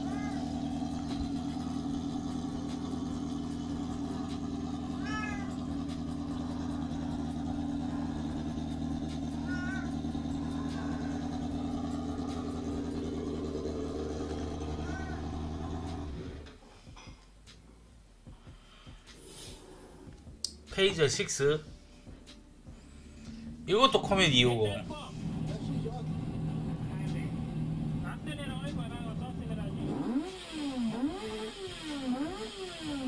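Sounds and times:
cat meowing: 0.0 - 0.8, 4.8 - 5.8, 9.3 - 11.5, 14.2 - 15.7
motorcycle engine running: 0.0 - 16.6, 18.2 - 33.0.

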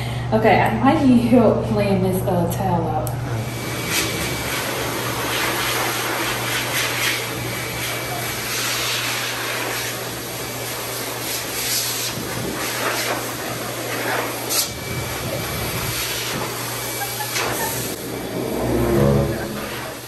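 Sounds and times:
pet dryer blowing air: 3.1 - 18.5.

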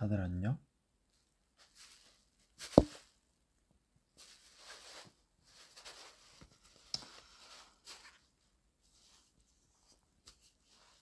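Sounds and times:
rustling handling noise on microphone: 1.1 - 3.4, 4.1 - 11.0.

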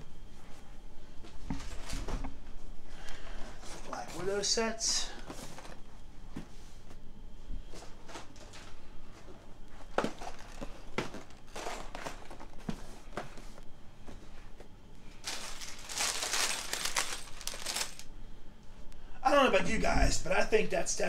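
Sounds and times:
cardboard crinkling and rustling: 7.7 - 13.6, 14.2 - 18.0.

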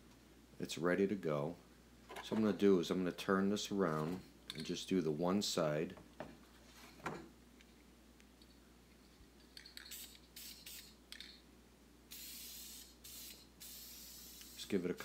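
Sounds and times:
aerosol spray can hissing: 9.8 - 11.0, 12.1 - 14.8.

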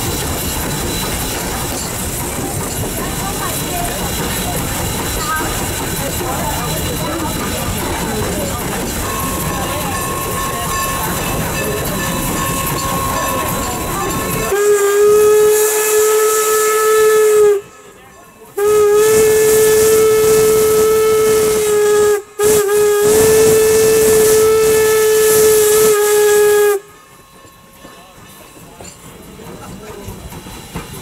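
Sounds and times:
steam locomotive running: 0.0 - 31.0
steam whistle blasts: 9.1 - 17.9, 18.6 - 27.0.

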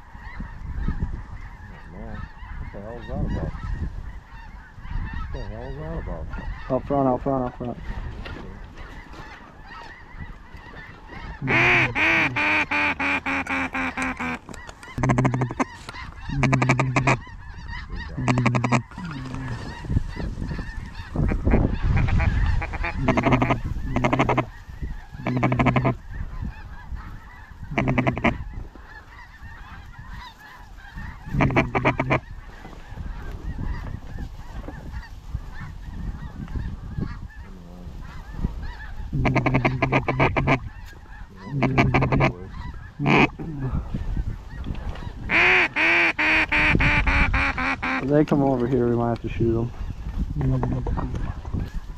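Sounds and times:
duck quacking: 8.5 - 48.1.

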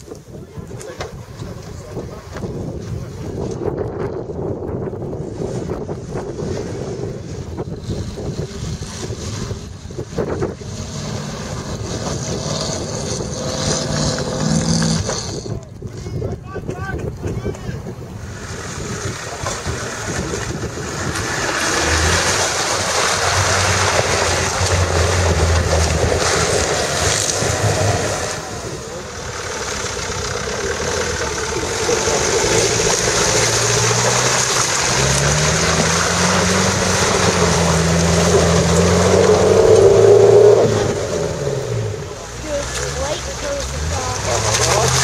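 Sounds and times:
engines working under load: 5.1 - 45.0.

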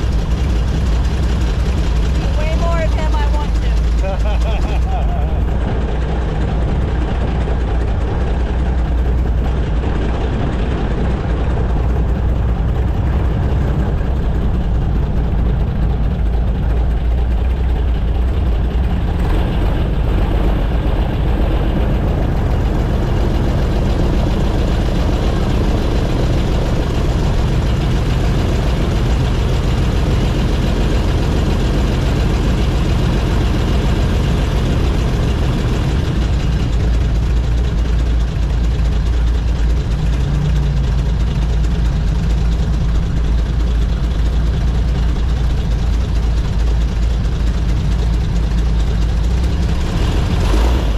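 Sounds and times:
airboat engine and propeller drone: 0.0 - 50.9.

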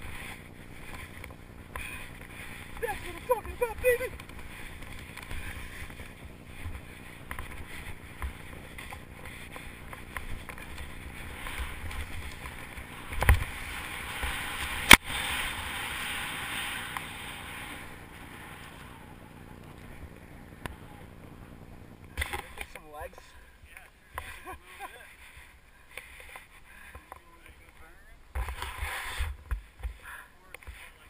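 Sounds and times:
skis hissing through powder snow: 0.0 - 20.5, 28.5 - 29.4.

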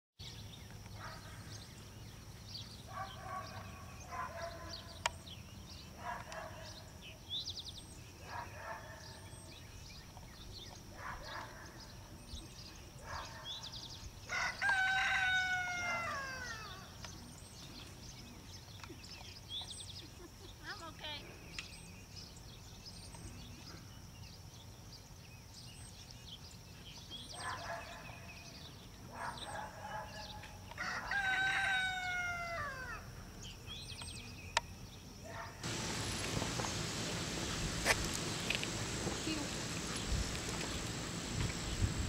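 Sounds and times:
rooster crowing: 14.3 - 16.9, 30.8 - 33.0.

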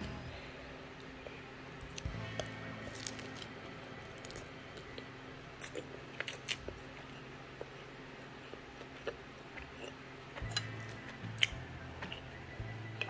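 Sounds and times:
faint low hum: 0.0 - 13.0
chewing mouth sounds: 5.6 - 12.3.

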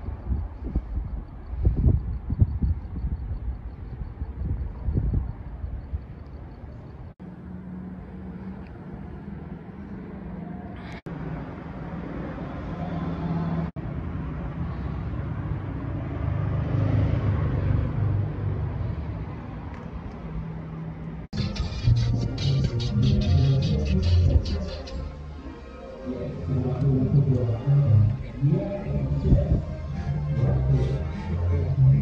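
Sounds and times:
traffic rumble: 0.0 - 32.0
music: 21.4 - 32.0.

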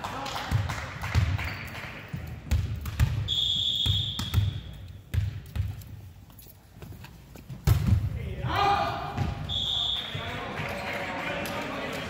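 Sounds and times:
volleyball bouncing on hardwood floor: 2.2 - 5.9, 7.6 - 8.1, 9.2 - 9.5
referee's whistle: 3.2 - 4.7, 9.4 - 10.2.

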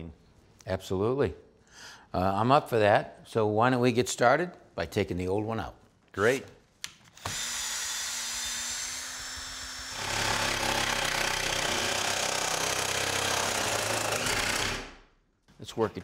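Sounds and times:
cordless drill driving screw: 7.1 - 14.9.

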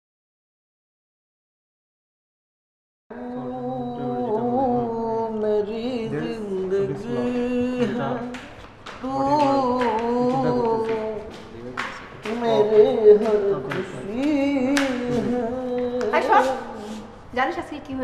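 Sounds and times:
person singing long wavering notes: 3.1 - 11.4, 12.2 - 17.2.

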